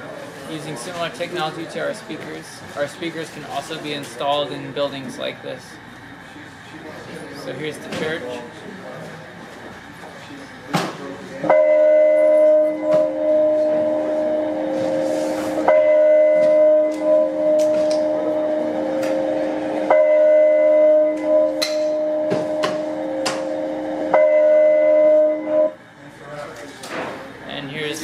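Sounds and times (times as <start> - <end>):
church bell tolling: 11.5 - 25.8.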